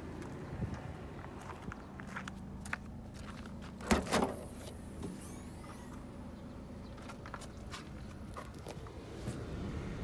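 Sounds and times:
car tailgate clunks: 0:03.8 - 0:05.2.

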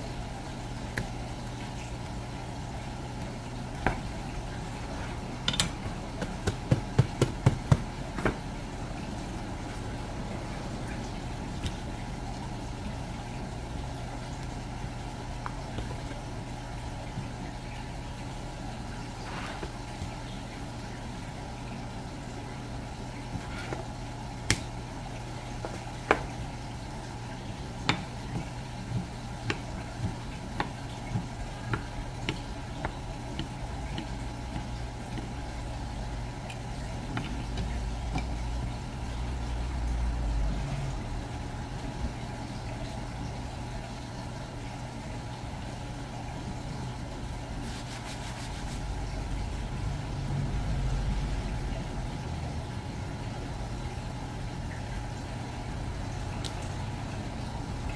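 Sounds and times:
low machine hum: 0:00.0 - 0:57.9
knife tapping cutting board: 0:05.5 - 0:08.4.

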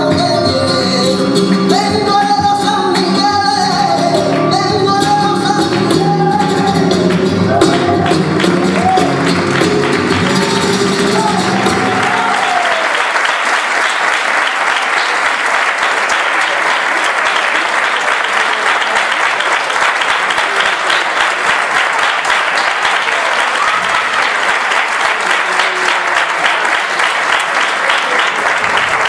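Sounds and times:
sung flamenco note: 0:03.8 - 0:12.2
audience applauding: 0:04.1 - 0:29.0.

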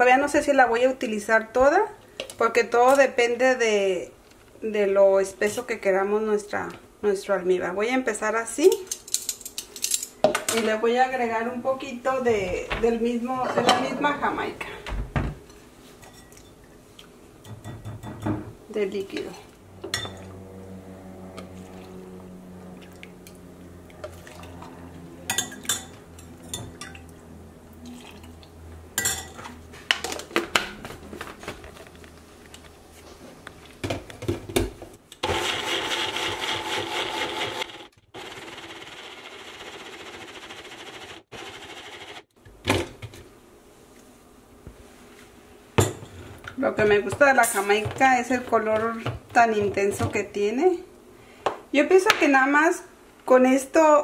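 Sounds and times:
blender grinding: 0:35.2 - 0:42.3.

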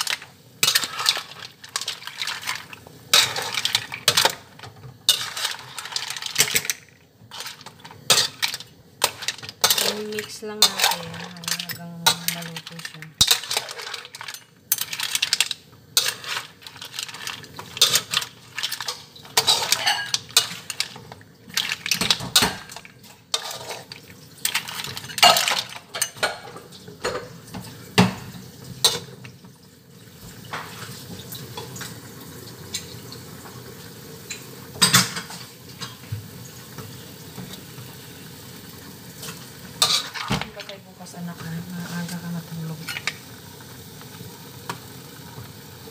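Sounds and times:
utensil scraping a pan: 0:00.0 - 0:26.5, 0:39.2 - 0:40.7
food sizzling: 0:00.0 - 0:45.9.

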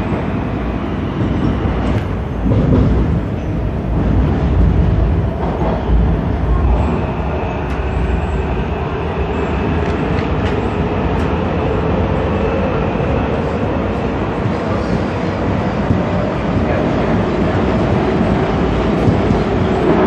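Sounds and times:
metro train wheels rumbling: 0:00.0 - 0:20.0.

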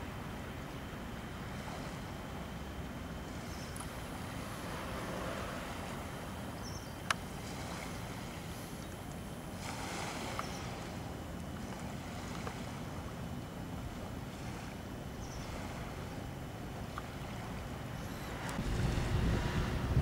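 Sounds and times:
distant water: 0:00.0 - 0:20.0
wind rumble: 0:01.3 - 0:08.7, 0:09.6 - 0:20.0.

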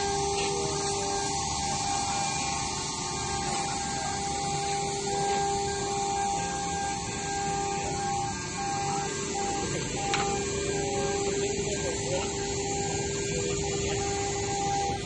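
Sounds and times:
spindle whine: 0:00.0 - 0:15.0.

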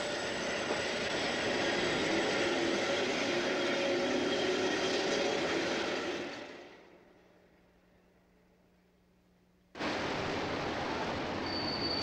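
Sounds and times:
tram wheels rumbling on rails: 0:00.0 - 0:07.5, 0:09.8 - 0:12.0.

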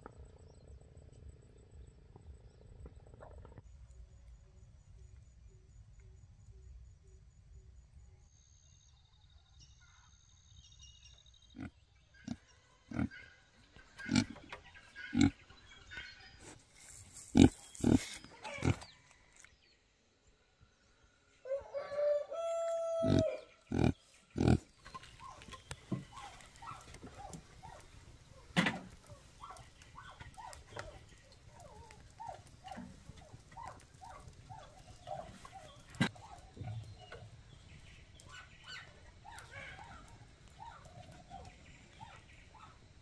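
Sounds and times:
chickens clucking: 0:12.2 - 0:16.6, 0:22.7 - 0:42.7
rooster crowing: 0:21.4 - 0:23.5.

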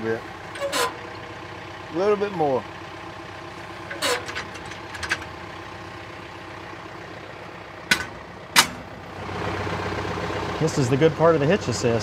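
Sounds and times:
diesel tractor idling: 0:00.0 - 0:12.0
metal clicks from hitch linkage: 0:00.5 - 0:01.5, 0:03.8 - 0:05.4, 0:07.9 - 0:09.0.

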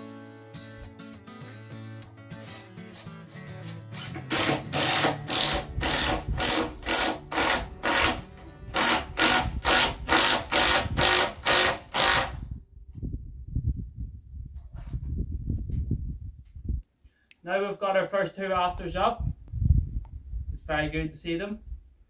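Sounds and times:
cordless drill driving screw: 0:03.6 - 0:12.4.

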